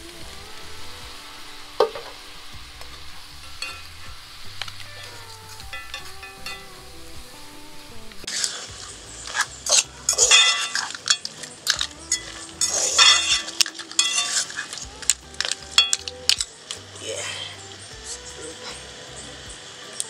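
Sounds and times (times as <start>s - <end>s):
food sizzling: 0.0s - 20.0s
soft background music: 0.0s - 20.0s
spoon scraping metal pan: 9.3s - 14.8s.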